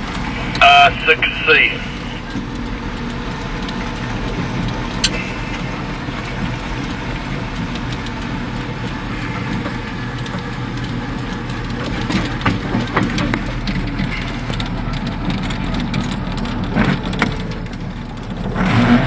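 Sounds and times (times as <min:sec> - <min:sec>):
truck engine and road noise: 0:00.0 - 0:19.0.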